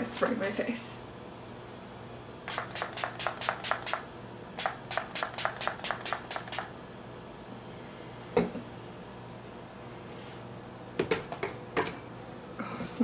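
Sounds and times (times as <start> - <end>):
spray bottle pump spritzes: 2.5 - 6.7.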